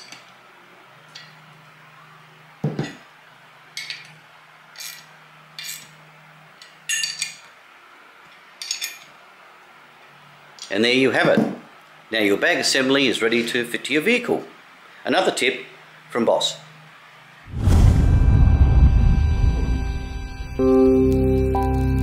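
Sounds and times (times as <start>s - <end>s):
spanner clinking on metal: 6.9s - 7.5s, 8.6s - 9.1s.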